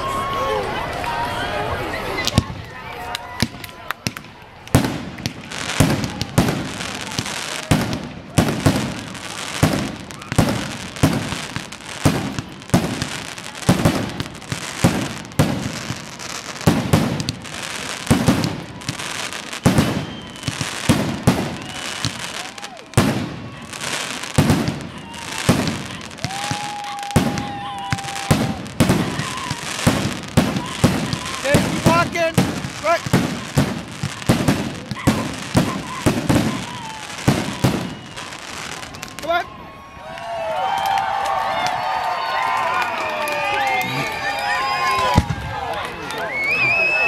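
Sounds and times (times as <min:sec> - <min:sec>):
firework crackling: 0:01.9 - 0:39.5
steady whistle: 0:19.5 - 0:20.8, 0:36.6 - 0:39.2, 0:46.2 - 0:47.0.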